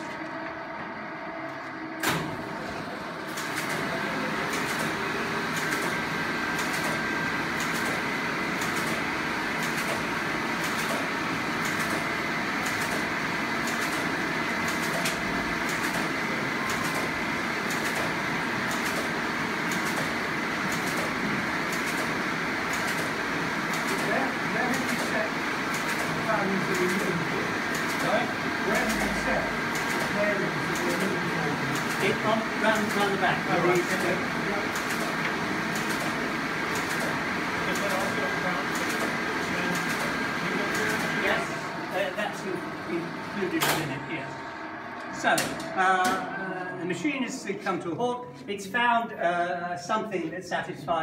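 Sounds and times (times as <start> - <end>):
machine mechanical running noise: 0.0 - 48.0
machine regular clicking: 3.3 - 28.1, 28.8 - 41.4.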